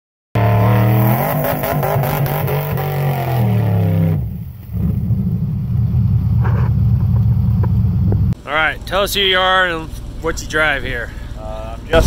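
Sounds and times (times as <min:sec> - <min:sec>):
truck engine revving: 0:00.4 - 0:08.4
clatter: 0:04.6 - 0:08.4.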